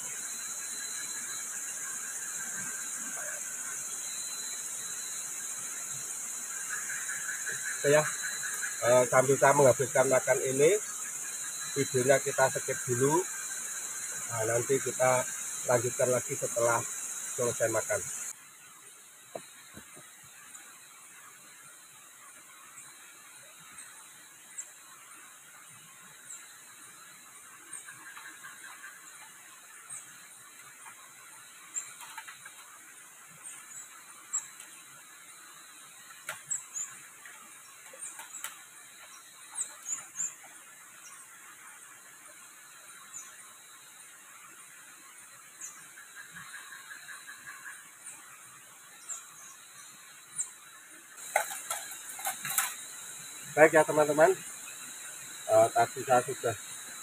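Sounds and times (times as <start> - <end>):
night insects chirping: 0.0 - 57.0
plastic plate rinsed in stream: 51.2 - 54.6.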